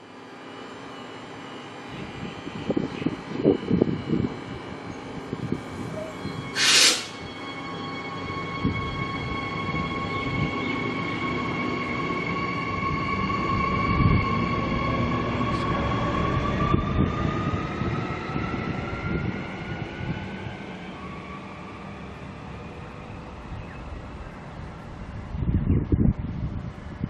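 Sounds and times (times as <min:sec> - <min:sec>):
electric train motors whining: 0:00.3 - 0:17.1
train wheels rumbling: 0:02.6 - 0:26.9.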